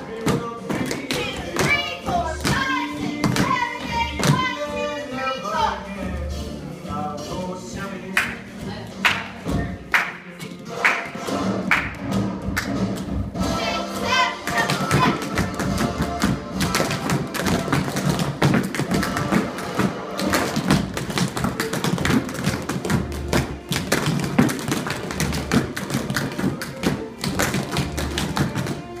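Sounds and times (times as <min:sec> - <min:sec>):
tap shoes on hard floor: 0:14.4 - 0:28.8.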